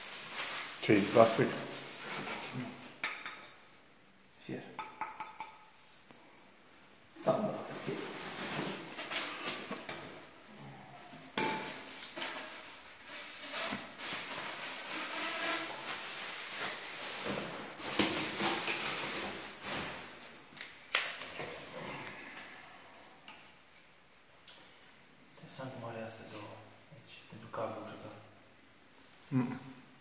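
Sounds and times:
plastic wrapping and cardboard rustling: 0:00.0 - 0:03.0, 0:06.8 - 0:22.4.

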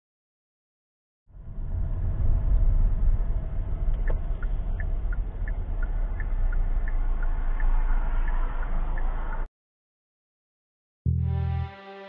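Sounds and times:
car engine and road rumble: 0:01.3 - 0:09.5
turn signal ticking: 0:03.8 - 0:09.5.

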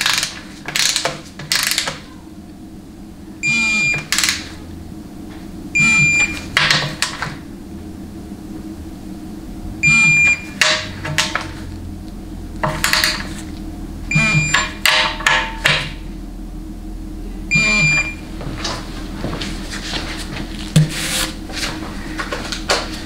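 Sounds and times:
torque wrench beeping: 0:03.4 - 0:04.4, 0:05.8 - 0:06.4, 0:09.8 - 0:10.6, 0:14.1 - 0:14.8, 0:17.5 - 0:18.2.

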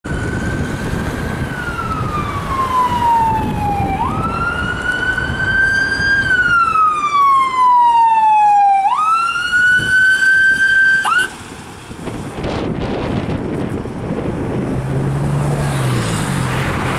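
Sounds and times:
wail siren: 0:00.0 - 0:11.3.

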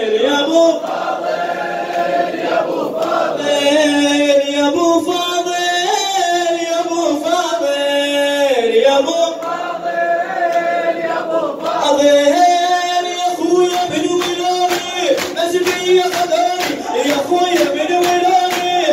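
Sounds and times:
men chanting together: 0:00.0 - 0:05.9, 0:06.5 - 0:18.9
rhythmic chest slapping: 0:00.8 - 0:03.4, 0:10.4 - 0:18.9.

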